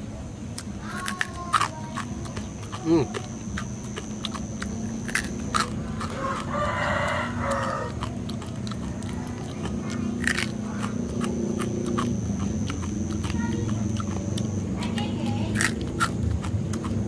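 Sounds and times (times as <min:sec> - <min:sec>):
steady low hum: 0:00.0 - 0:17.0
rooster crowing: 0:05.9 - 0:08.2.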